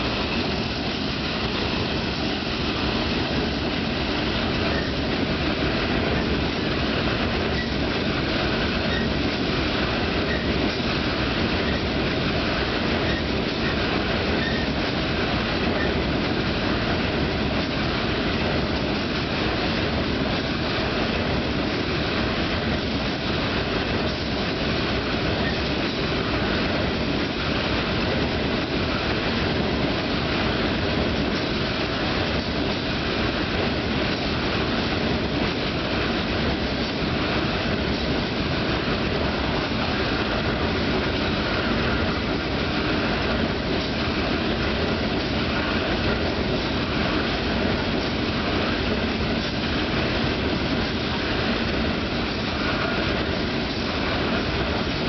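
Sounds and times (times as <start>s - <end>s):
train wheels rolling on rails: 0.0s - 55.0s.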